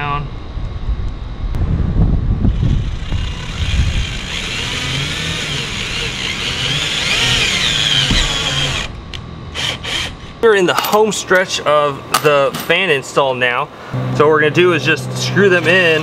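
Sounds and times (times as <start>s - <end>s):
cordless drill whining: 2.8s - 9.0s, 9.6s - 10.3s.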